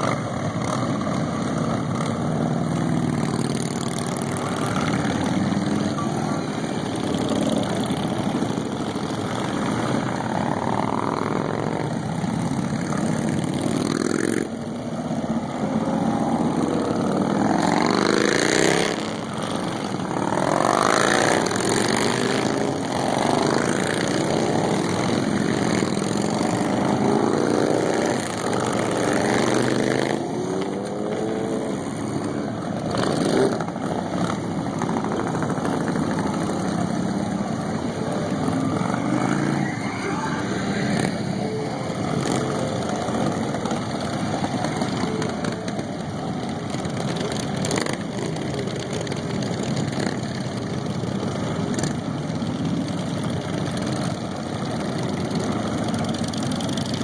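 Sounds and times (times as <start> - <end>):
motorcycles riding past: 0.0 - 57.0.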